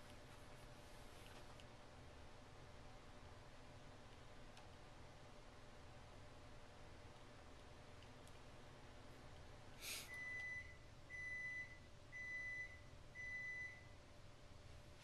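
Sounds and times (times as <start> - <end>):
faint microwave oven beeps: 10.1 - 14.2.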